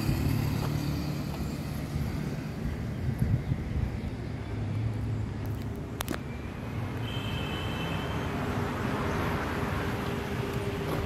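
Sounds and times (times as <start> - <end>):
motor vehicle running: 0.0 - 6.2.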